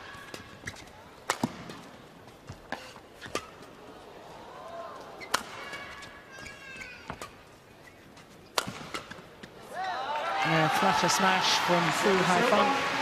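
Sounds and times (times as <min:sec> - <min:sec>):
shoes squeaking on court: 0:00.2 - 0:03.7, 0:05.2 - 0:09.6
rackets striking shuttlecock: 0:00.3 - 0:01.9, 0:05.2 - 0:06.0, 0:08.5 - 0:09.2.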